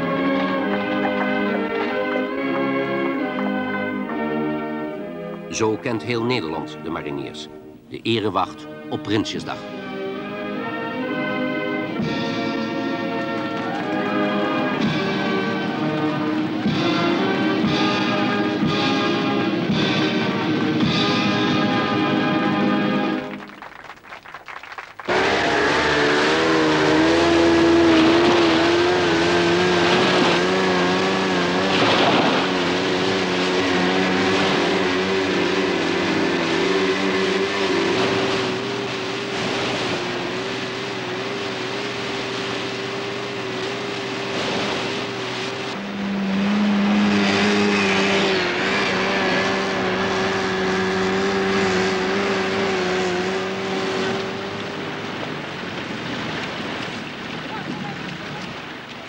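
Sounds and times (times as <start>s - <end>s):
louder low boat engine: 0.0s - 59.0s
outboard motors droning: 0.0s - 59.0s.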